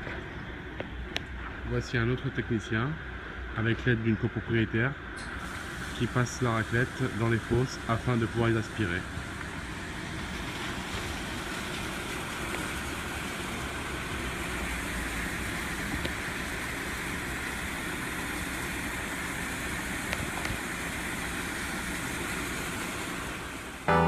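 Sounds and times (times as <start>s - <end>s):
pressure washer spraying concrete: 5.4s - 23.8s.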